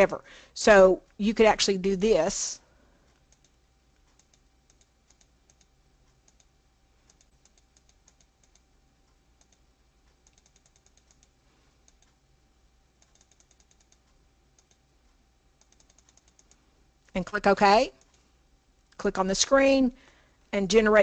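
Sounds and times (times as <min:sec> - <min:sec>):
low room hum: 0:00.0 - 0:21.0
computer mouse clicks: 0:03.1 - 0:12.2, 0:12.9 - 0:17.3, 0:18.0 - 0:18.3.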